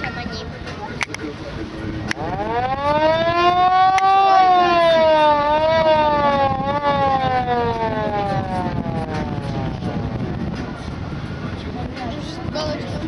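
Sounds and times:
siren-like wail: 0:02.2 - 0:09.8.

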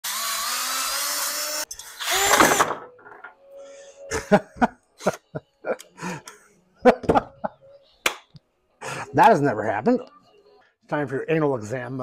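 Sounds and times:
drill motor whine: 0:00.0 - 0:02.6.

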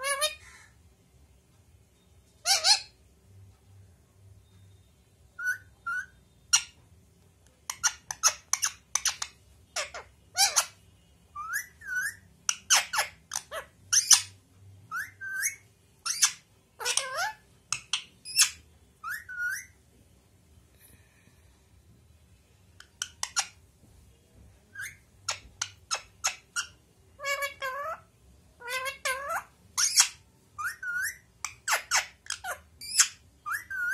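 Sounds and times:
parakeet giving shrill calls: 0:00.0 - 0:00.7, 0:02.4 - 0:03.0, 0:07.7 - 0:10.8, 0:11.4 - 0:19.8, 0:24.8 - 0:33.9.

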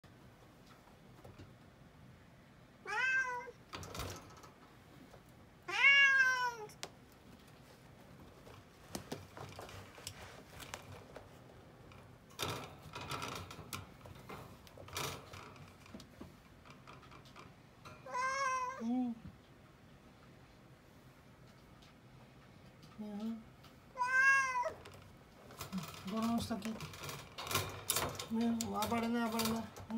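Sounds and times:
cat meowing: 0:02.8 - 0:03.6, 0:05.7 - 0:06.8, 0:18.1 - 0:18.8, 0:24.0 - 0:24.8
cat moving in a wire cage: 0:03.0 - 0:18.8, 0:21.2 - 0:29.9.

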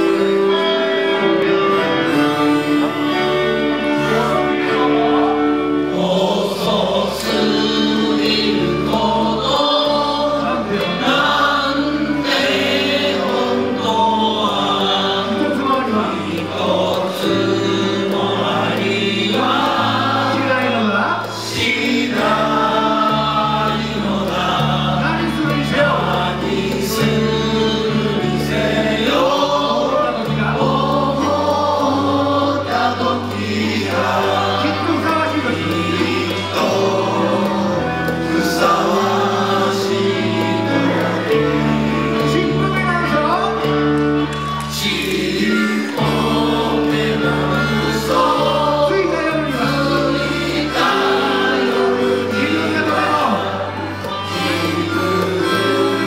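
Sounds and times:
choir of male voices singing: 0:00.0 - 0:56.0
instrumental backing with low bass: 0:00.0 - 0:56.0.

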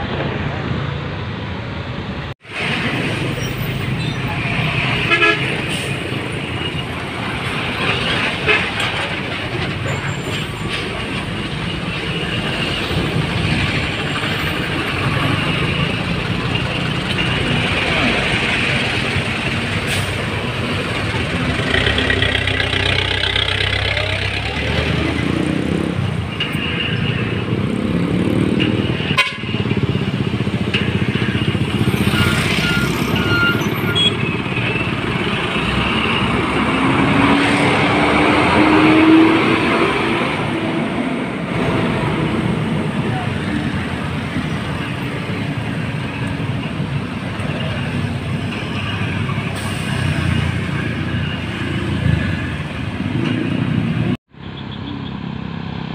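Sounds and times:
diesel trucks passing: 0:00.0 - 0:55.9
truck engine revving: 0:10.6 - 0:29.0, 0:29.6 - 0:44.3
motorbikes passing: 0:10.6 - 0:33.2, 0:34.2 - 0:55.9.

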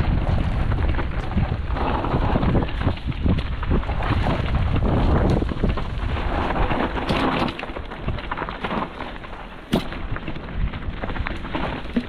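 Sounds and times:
bike tyres rattling over ground: 0:00.0 - 0:12.0
wind rumbling on microphone: 0:00.0 - 0:12.0.

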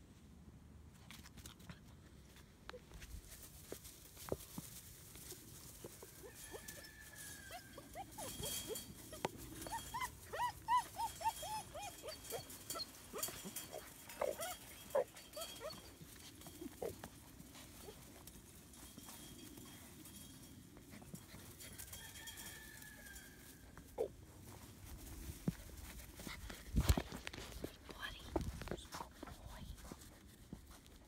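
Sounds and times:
puppies yipping: 0:07.5 - 0:17.1.

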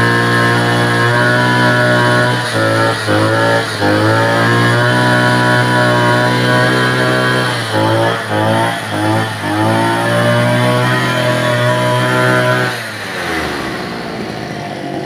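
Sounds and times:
brush cutter engine running: 0:00.0 - 0:15.0.

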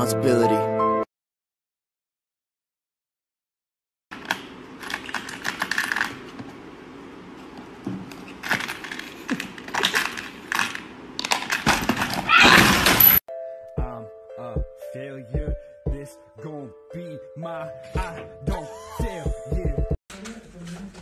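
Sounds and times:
small plastic parts clicking and rattling: 0:04.2 - 0:06.4, 0:08.1 - 0:12.2.

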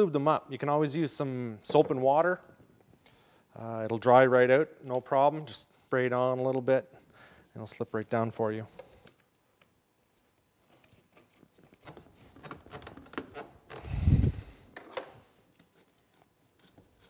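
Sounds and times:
pipe fittings clicking and rubbing: 0:08.7 - 0:17.0.

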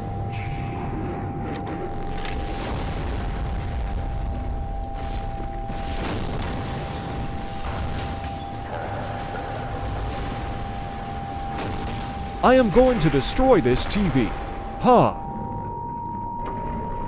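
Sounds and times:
steady high hum: 0:03.4 - 0:17.0.

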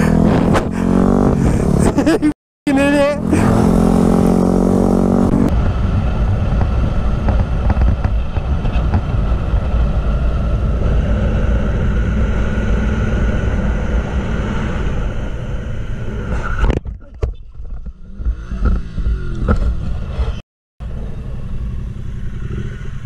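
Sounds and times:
motorcycle engine running: 0:00.0 - 0:16.1, 0:20.8 - 0:23.0.

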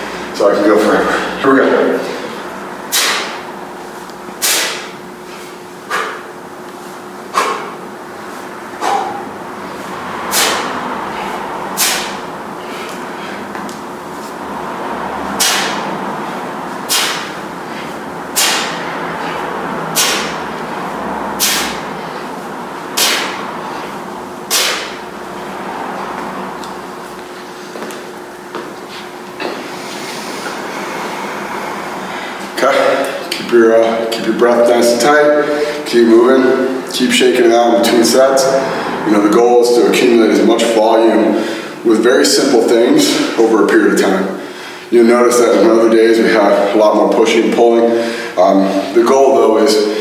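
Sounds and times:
sharp hissing exhales: 0:02.2 - 0:03.4, 0:04.4 - 0:06.3, 0:07.3 - 0:13.5, 0:15.4 - 0:15.9, 0:16.9 - 0:20.4, 0:21.4 - 0:22.4, 0:23.0 - 0:25.0.

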